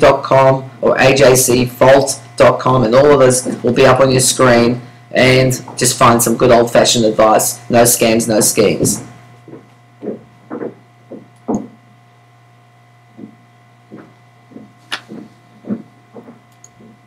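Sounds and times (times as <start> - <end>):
low electrical hum: 0.0 - 17.0
soft knocks and clicks: 9.5 - 11.8, 13.2 - 17.0.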